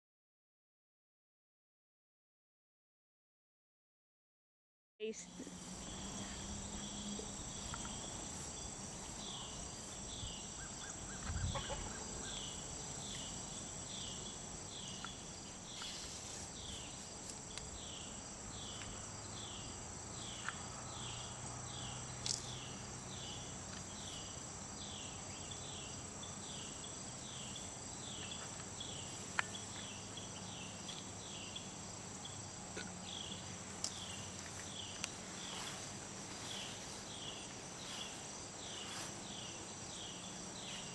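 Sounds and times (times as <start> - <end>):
insects droning: 5.1 - 40.9.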